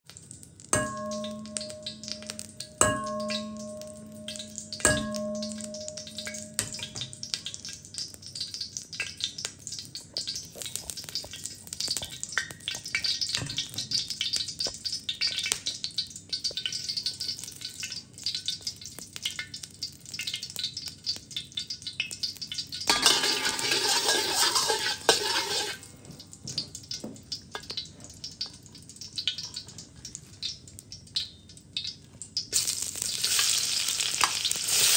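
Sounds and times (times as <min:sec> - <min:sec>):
oil sizzling in wok: 0:00.1 - 0:26.1, 0:27.2 - 0:34.9
metal striking wok: 0:00.7 - 0:09.2, 0:22.8 - 0:25.9
metal spatula clicking and scraping: 0:21.6 - 0:25.9.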